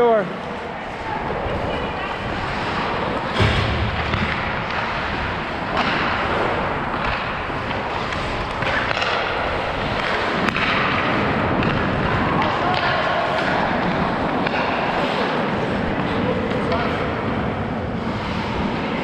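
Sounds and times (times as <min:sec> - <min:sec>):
skates scraping on ice: 0:00.2 - 0:19.0
stick and puck knocks: 0:03.3 - 0:14.8.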